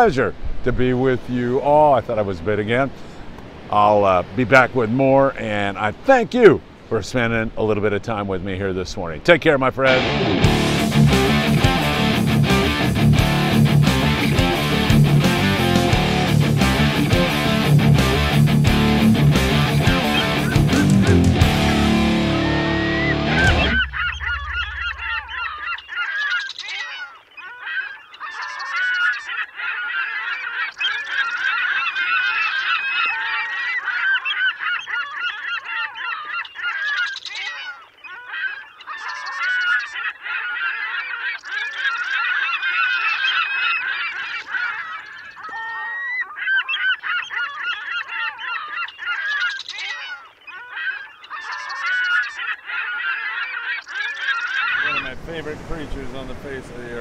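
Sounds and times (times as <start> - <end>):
flock of birds chattering: 11.2 - 57.0.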